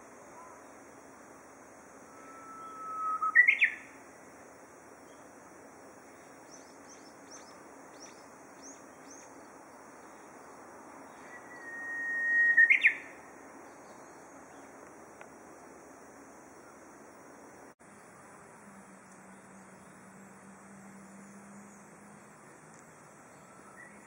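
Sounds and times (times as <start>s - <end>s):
faint high bird chirps: 2.0s - 3.9s, 11.1s - 14.7s, 23.3s - 24.0s
bird singing whistled song: 2.1s - 3.9s, 6.4s - 9.4s, 11.1s - 14.6s, 23.3s - 24.0s.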